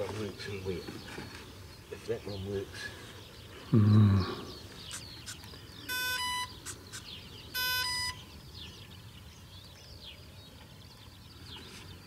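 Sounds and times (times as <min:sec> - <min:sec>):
rising electronic beeps: 0:05.9 - 0:07.0.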